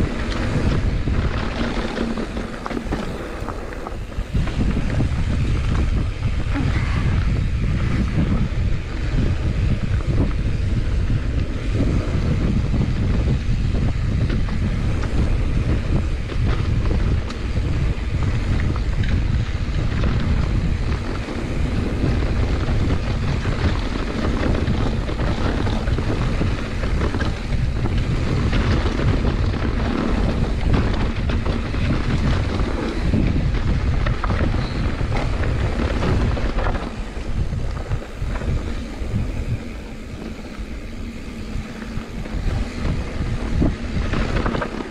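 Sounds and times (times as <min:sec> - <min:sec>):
bike rattling over bumps: 0:00.0 - 0:44.9
tyres rolling on dirt: 0:00.0 - 0:44.9
wind rushing over microphone: 0:00.0 - 0:44.9.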